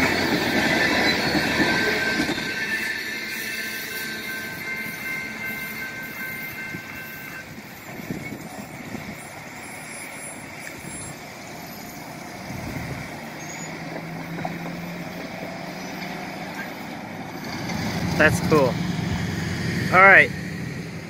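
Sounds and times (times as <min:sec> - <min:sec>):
thin high crossing bell ringing: 0:01.6 - 0:07.6
traffic noise: 0:05.0 - 0:21.0
car driving over tracks: 0:10.6 - 0:21.0.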